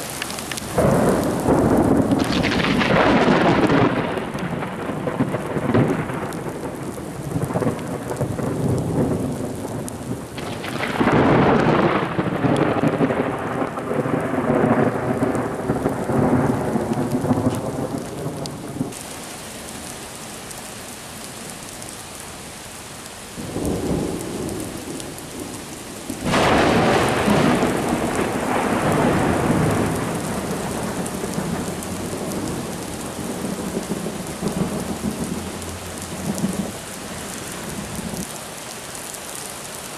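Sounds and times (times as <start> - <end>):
steady rain: 0.0 - 39.9
thunder rolling: 0.8 - 19.0, 23.4 - 36.8.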